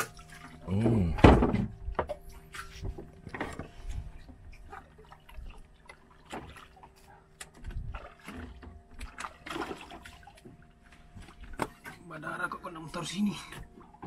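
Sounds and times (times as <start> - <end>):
water lapping against boat: 0.0 - 14.0
light knocks on wooden hull: 1.1 - 4.8, 10.4 - 12.0.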